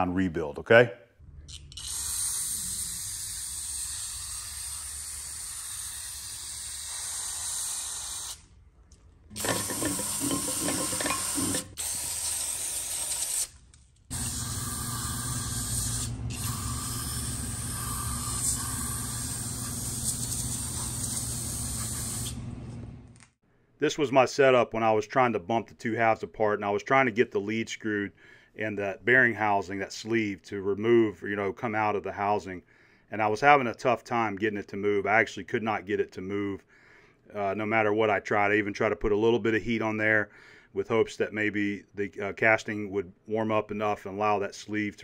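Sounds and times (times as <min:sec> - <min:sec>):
aerosol can spraying: 0:01.8 - 0:08.5, 0:09.4 - 0:22.4.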